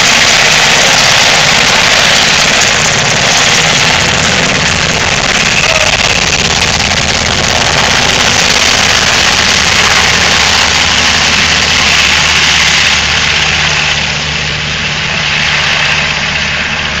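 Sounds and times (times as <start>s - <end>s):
helicopter rotor and turbine noise: 0.0s - 17.0s.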